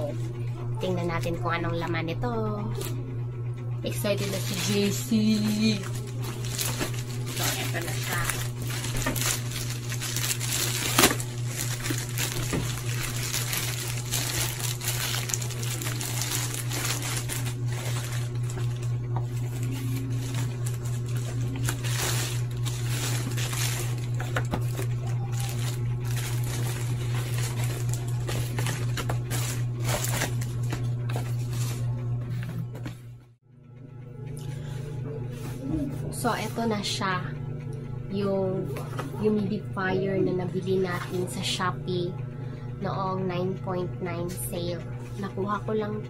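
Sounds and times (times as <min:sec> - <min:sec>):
steady low hum: 0:00.0 - 0:46.0
plastic pouch crinkling: 0:04.2 - 0:31.8.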